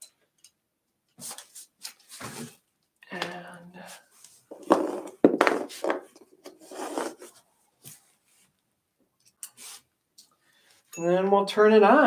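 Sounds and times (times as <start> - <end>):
rubs and knocks of rummaging: 1.2 - 2.6, 4.1 - 8.5.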